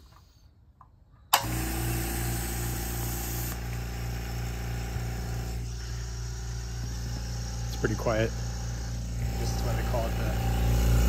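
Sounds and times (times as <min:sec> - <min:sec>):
air compressor running: 0:01.4 - 0:11.0.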